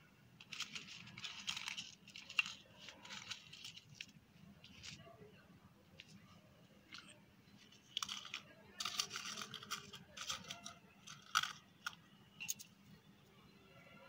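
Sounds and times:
dried chillies crackling: 0.4 - 5.2, 6.9 - 12.7.

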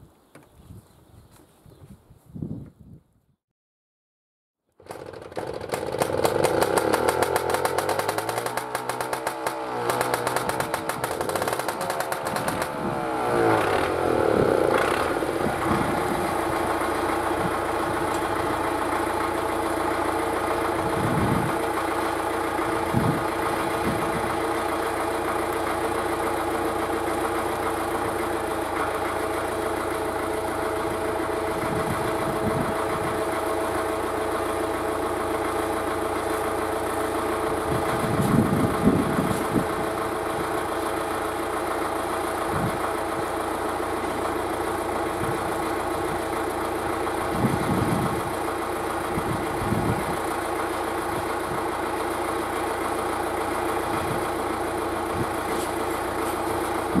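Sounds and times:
starting engine buzzy rattle: 4.7 - 57.0
diesel engine idling: 4.9 - 57.0.

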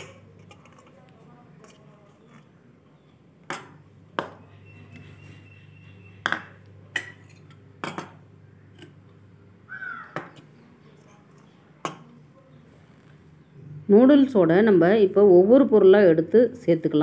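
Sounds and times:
low steady hum: 0.0 - 17.0
metal dishes clinking: 6.2 - 8.2.

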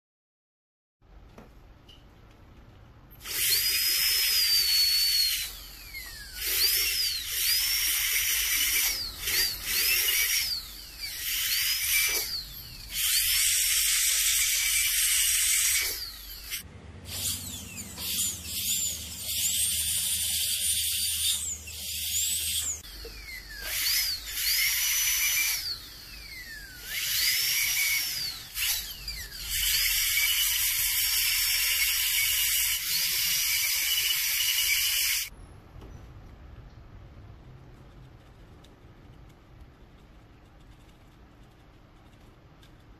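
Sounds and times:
dental drill whining: 3.2 - 35.3.

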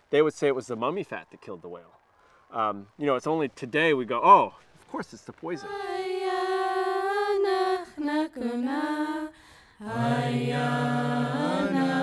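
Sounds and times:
voices chanting held notes: 5.5 - 12.0.

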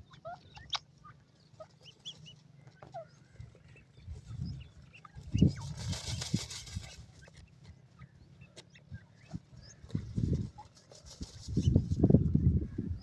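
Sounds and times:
bird chirps and clucks: 0.0 - 13.0
wings scuffling in dirt: 0.1 - 12.3.

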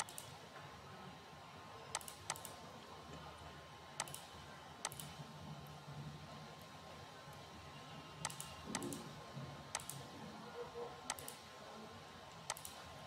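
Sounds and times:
computer mouse clicking: 0.0 - 0.4, 1.9 - 2.6, 4.0 - 5.2, 8.2 - 9.1, 9.7 - 10.1, 11.1 - 11.4, 12.3 - 12.8.

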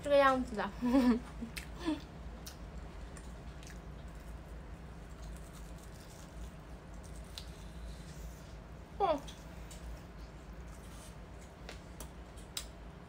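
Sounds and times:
low background hum: 0.0 - 13.0
faint chewing: 1.4 - 8.6.

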